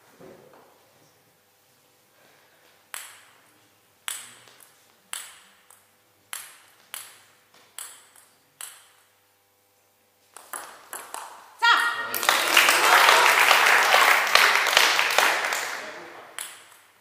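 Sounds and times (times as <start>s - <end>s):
table tennis ball bouncing: 2.9s - 3.4s, 4.0s - 9.1s, 10.4s - 12.0s, 16.3s - 17.0s.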